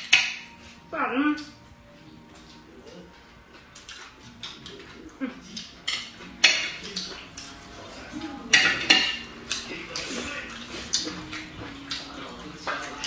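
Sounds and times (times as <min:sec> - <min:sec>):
chopsticks clinking on porcelain: 0:05.6 - 0:07.6, 0:08.5 - 0:10.1.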